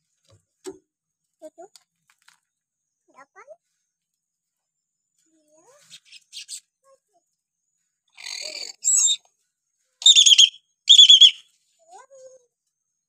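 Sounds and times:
bird warbling whistled calls: 0:08.2 - 0:09.2, 0:10.0 - 0:11.4.

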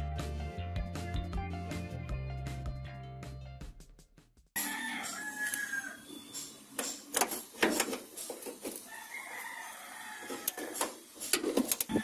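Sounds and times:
rooster crowing: 0:04.6 - 0:06.3, 0:08.8 - 0:11.0.

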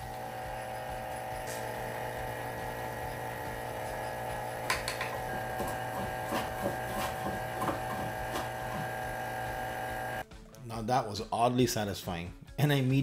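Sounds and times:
vacuum pump humming: 0:00.0 - 0:10.2
hand plane scraping wood: 0:05.3 - 0:10.2.

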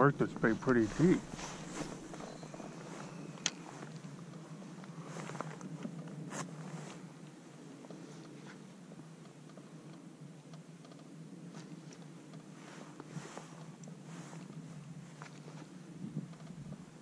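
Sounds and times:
steady low hum: 0:00.0 - 0:17.0
fishing tackle rustling: 0:00.2 - 0:03.7.

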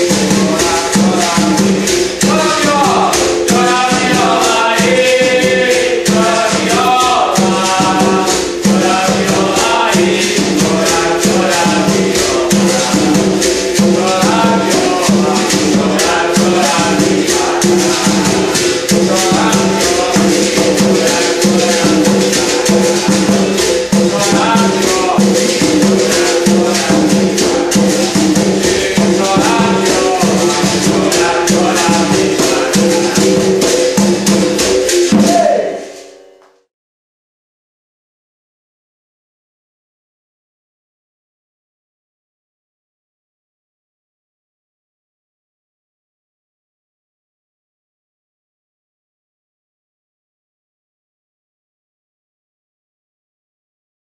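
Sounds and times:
person singing: 0:00.0 - 0:36.2
rattling shaker: 0:00.0 - 0:36.2
berimbau playing: 0:00.0 - 0:36.5
hand drum: 0:00.0 - 0:36.7.

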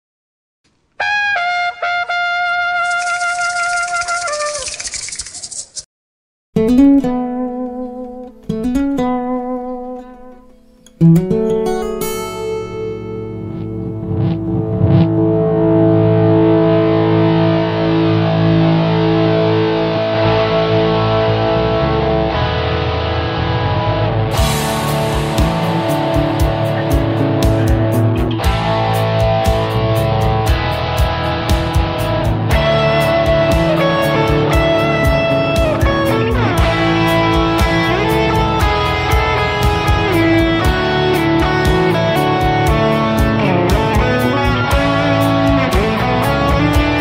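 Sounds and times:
trumpet jingle: 0:01.0 - 0:04.8
distorted electric guitar chords: 0:06.6 - 0:47.0.

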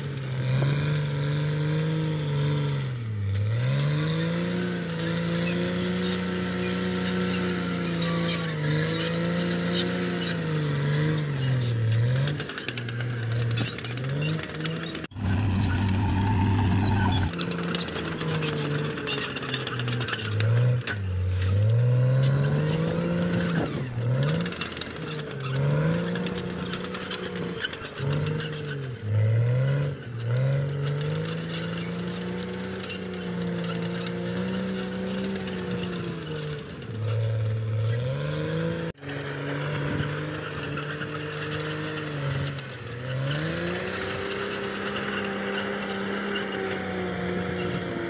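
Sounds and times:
bulldozer diesel engine under load: 0:00.0 - 0:48.0.

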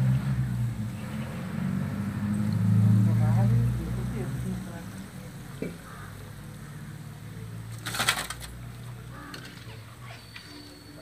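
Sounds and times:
wire skimmer clattering on metal: 0:07.7 - 0:09.7.

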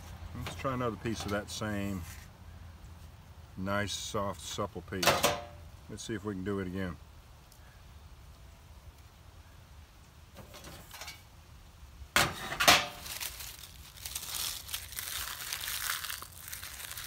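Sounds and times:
dry leaves crackling and crunching: 0:12.3 - 0:17.0.

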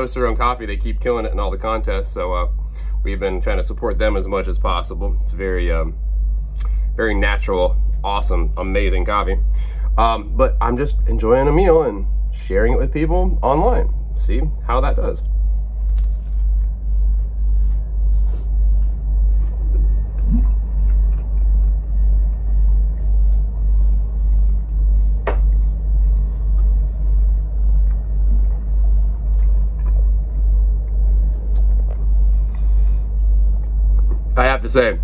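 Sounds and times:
deep machine rumble: 0:00.0 - 0:35.0
faint eating noises: 0:13.8 - 0:34.4.

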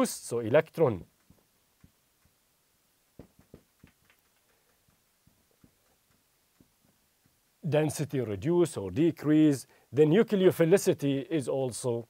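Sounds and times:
marker writing on whiteboard: 0:03.2 - 0:07.4.

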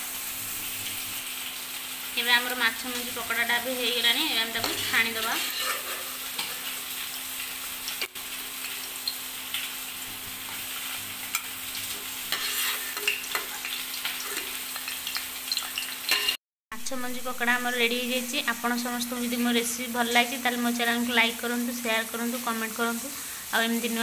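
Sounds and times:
deep-frying sizzle in hot oil: 0:00.0 - 0:24.0
slotted spoon in pan: 0:16.1 - 0:16.4.

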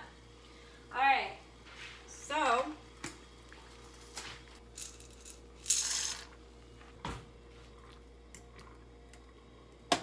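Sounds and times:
boiling water: 0:00.0 - 0:04.6, 0:06.1 - 0:10.0
macaroni rattling into a pot: 0:04.7 - 0:06.3.

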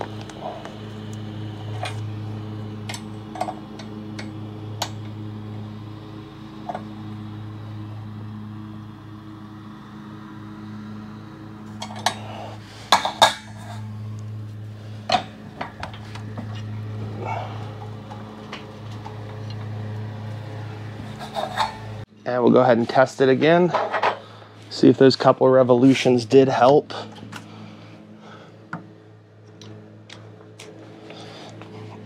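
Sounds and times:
steady low hum: 0:00.0 - 0:32.0
metal tools clinking: 0:11.8 - 0:13.9, 0:21.0 - 0:21.9.

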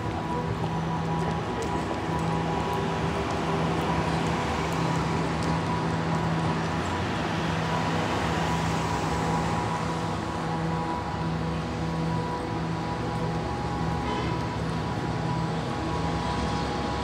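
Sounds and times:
street traffic hum: 0:00.0 - 0:17.0.

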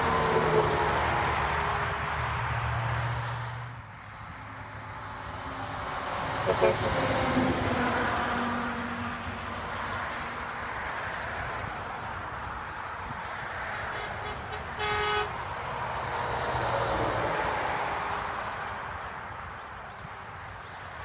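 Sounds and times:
truck engine and tyres passing: 0:00.0 - 0:21.0
truck air horn toot: 0:06.4 - 0:07.2, 0:13.7 - 0:15.4.

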